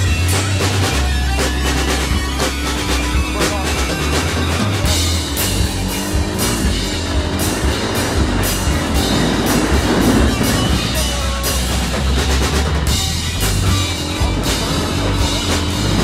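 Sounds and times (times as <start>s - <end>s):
drum kit beat: 0.0s - 16.0s
rock music: 0.0s - 16.0s.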